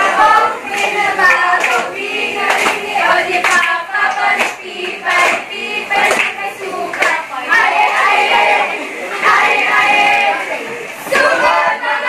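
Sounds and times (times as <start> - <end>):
sharp hand claps: 0.7 - 8.0.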